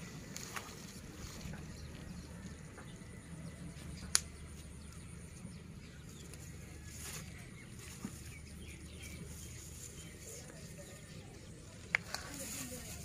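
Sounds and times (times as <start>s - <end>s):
wet grass rustling: 0.0s - 2.2s, 6.4s - 13.0s.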